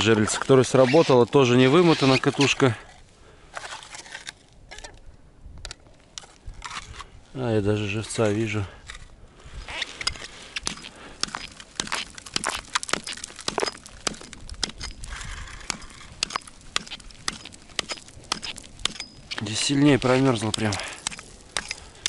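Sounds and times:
hatchet chopping ice: 0:10.6 - 0:22.0
ice chips clattering and splashing: 0:10.8 - 0:22.0.

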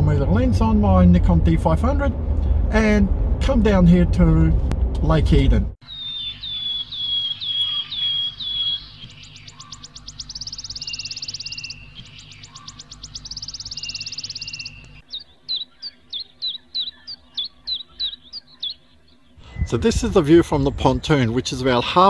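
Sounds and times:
short falling bird chirps: 0:05.8 - 0:19.7
bird trills and buzzy notes: 0:05.8 - 0:22.0.

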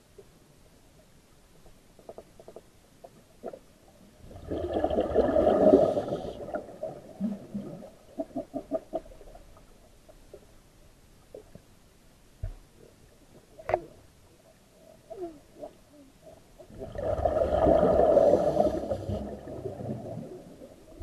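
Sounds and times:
small clicks and knocks: 0:01.6 - 0:03.6
underwater regulator bubbling: 0:04.2 - 0:09.6, 0:16.6 - 0:21.0.

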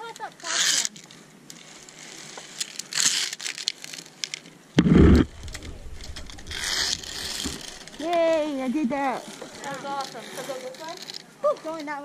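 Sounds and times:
rustling and handling noise: 0:00.9 - 0:12.0
short heavy thump: 0:04.8 - 0:08.0.

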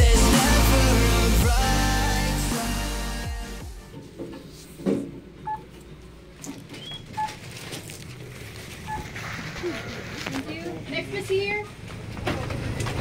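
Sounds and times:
rustling of packaged goods: 0:06.4 - 0:13.0.

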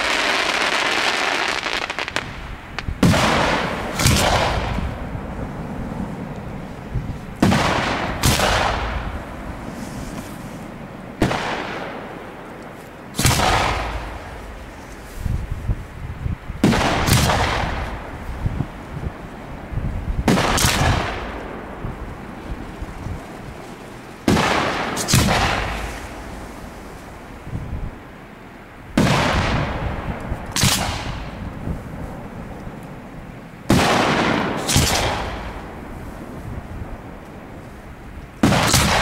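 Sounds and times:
firework shells bursting: 0:22.7 - 0:26.5
small firework pops: 0:30.2 - 0:31.3.

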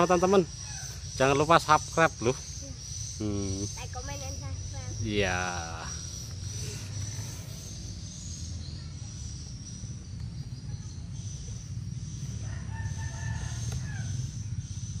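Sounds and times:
high-pitched insect drone: 0:00.0 - 0:15.0
rooster crowing: 0:12.4 - 0:14.4.

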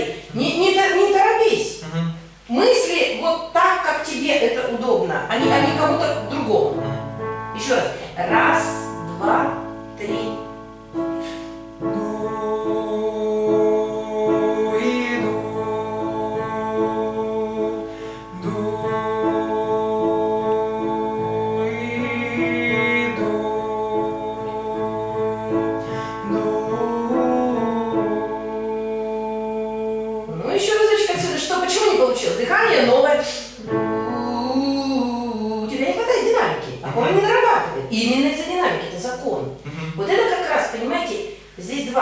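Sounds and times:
person singing long notes: 0:08.8 - 0:30.5, 0:33.6 - 0:35.8.

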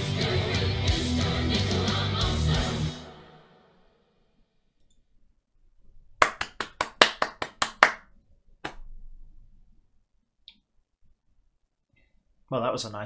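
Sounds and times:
person clapping hands: 0:06.2 - 0:08.9.

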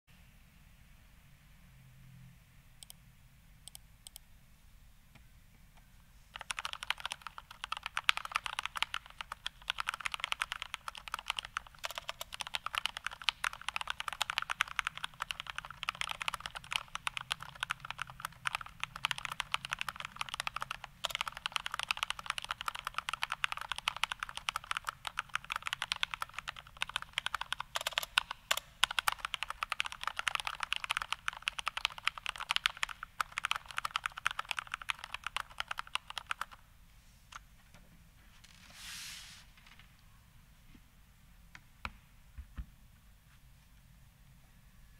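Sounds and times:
fast mechanical keyboard typing: 0:06.4 - 0:36.6.

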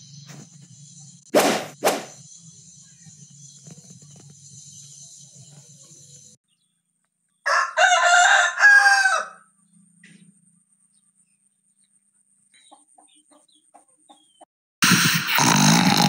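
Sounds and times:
rooster crowing: 0:07.4 - 0:09.6.

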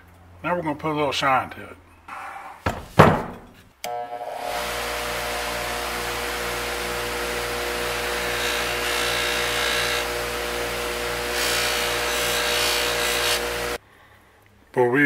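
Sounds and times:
bench buffer motor hum: 0:03.9 - 0:13.8
knife rubbing on buffing wheel: 0:11.2 - 0:13.8.

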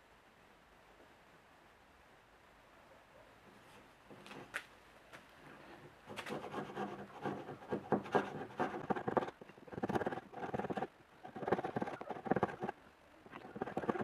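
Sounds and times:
chisel scraping wood: 0:06.2 - 0:12.8, 0:13.4 - 0:14.0.

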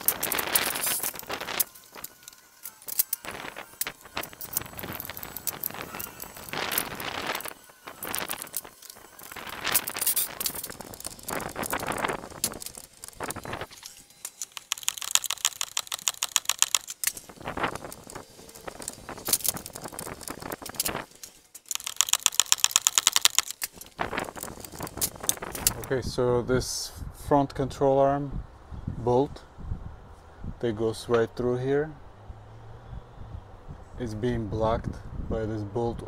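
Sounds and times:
ratchet wrench clicking: 0:00.0 - 0:25.9.

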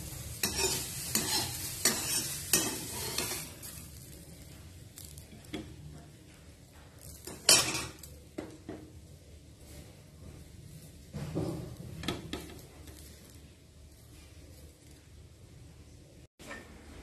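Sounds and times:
steel spoon scraping frying pan: 0:00.0 - 0:04.1
light sizzle: 0:00.0 - 0:17.0.

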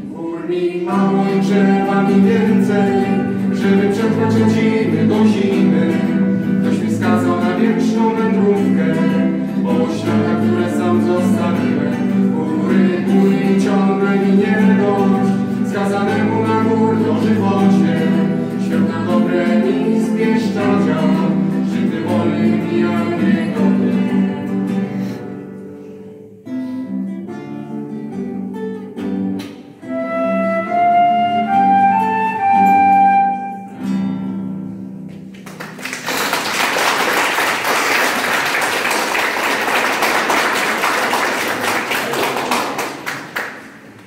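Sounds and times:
person singing: 0:00.0 - 0:26.4
classical guitar: 0:00.0 - 0:36.4
flute playing: 0:29.8 - 0:34.0
applause: 0:35.3 - 0:44.0.

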